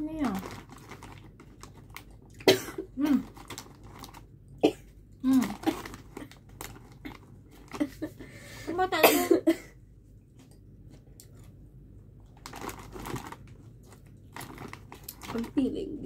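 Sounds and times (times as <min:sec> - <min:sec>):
chip bag rustling: 0:00.0 - 0:02.2, 0:03.1 - 0:04.3, 0:05.3 - 0:08.1, 0:12.3 - 0:15.8
crunchy chips being chewed: 0:00.2 - 0:02.5, 0:03.2 - 0:04.3, 0:05.4 - 0:07.9, 0:12.2 - 0:15.6.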